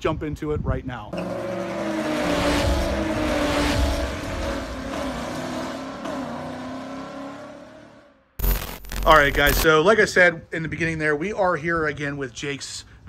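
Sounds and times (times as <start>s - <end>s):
car engine revving: 1.2s - 9.6s.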